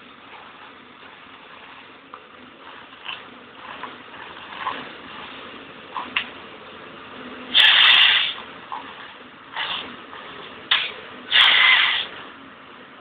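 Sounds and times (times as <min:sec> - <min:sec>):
harvester machine noise: 0:00.0 - 0:13.0
loud hissing burst: 0:07.5 - 0:08.4, 0:09.5 - 0:12.2.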